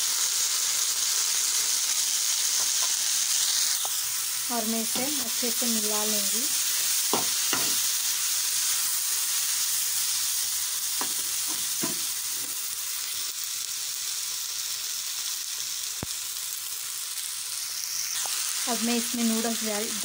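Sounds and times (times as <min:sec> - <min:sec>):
vegetables sizzling in oil: 0:00.0 - 0:20.0
spatula scraping and tapping pan: 0:07.1 - 0:07.8, 0:11.0 - 0:12.6.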